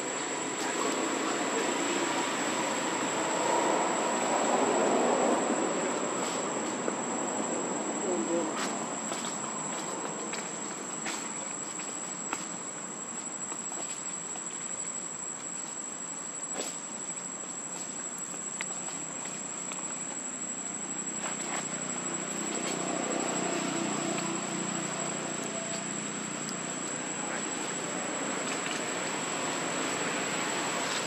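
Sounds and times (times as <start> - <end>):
high-pitched insect drone: 20.8 - 31.0.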